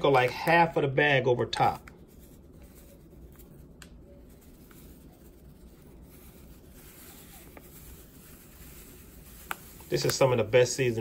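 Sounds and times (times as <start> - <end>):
powder pouring hiss: 6.2 - 11.0.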